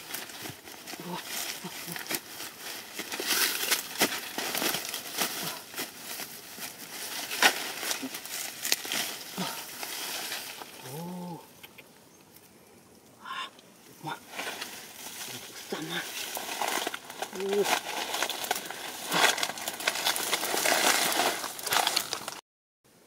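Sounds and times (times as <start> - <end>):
dry grass rustling and crackling: 0.0 - 13.1, 13.8 - 22.4
low voice-like sound: 10.8 - 11.6.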